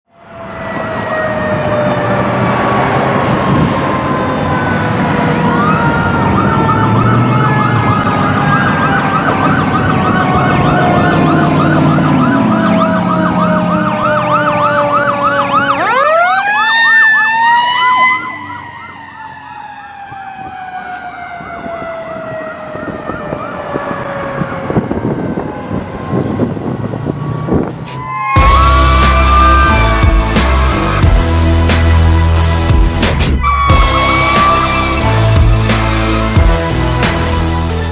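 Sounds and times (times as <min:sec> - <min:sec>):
electronic siren yelping: 0:00.1 - 0:26.3, 0:27.2 - 0:36.5
fire engine rumble: 0:00.1 - 0:37.9
music: 0:28.0 - 0:37.9.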